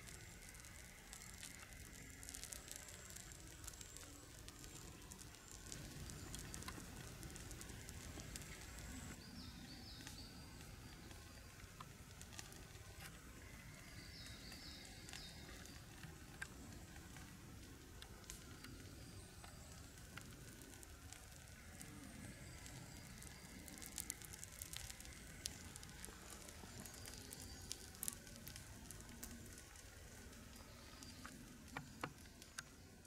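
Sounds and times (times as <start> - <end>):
torch burning and crackling: 0.0 - 33.0.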